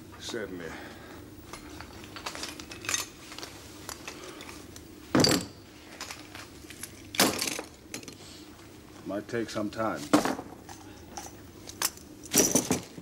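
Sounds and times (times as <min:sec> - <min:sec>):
magnifying glass clattering down: 0:11.8 - 0:12.9.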